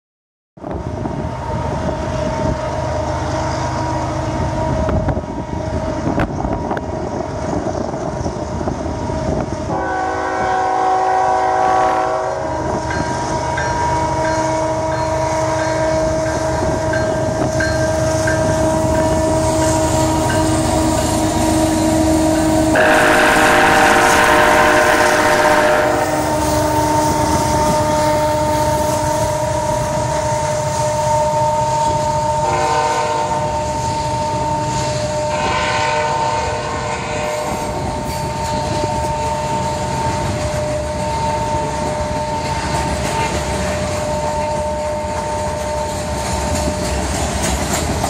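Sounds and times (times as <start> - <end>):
train engine rumble: 0.6 - 48.0
locomotive air horn blasts: 9.7 - 12.8, 21.4 - 29.6, 30.2 - 37.8.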